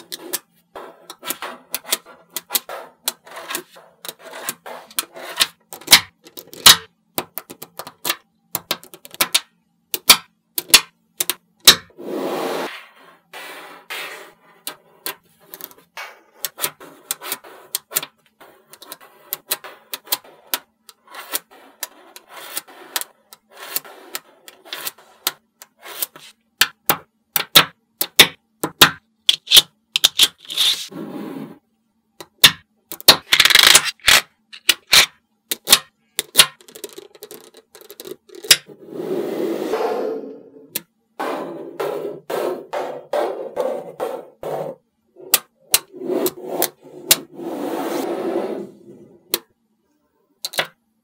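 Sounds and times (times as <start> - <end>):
balls rattling and scraping on table: 0.0 - 9.4, 10.6 - 28.4, 29.3 - 32.4, 33.0 - 49.5
magnetic balls clicking together: 35.5 - 38.7.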